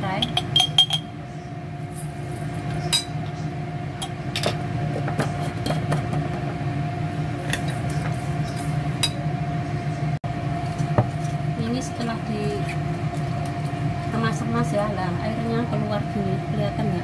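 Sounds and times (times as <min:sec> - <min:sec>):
spoon clinking against metal bowl: 0:00.1 - 0:01.1, 0:02.9 - 0:03.2.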